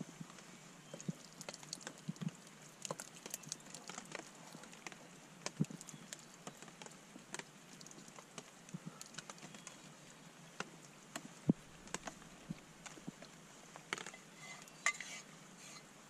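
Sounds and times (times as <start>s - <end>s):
plastic spoon scraping: 13.9s - 15.9s.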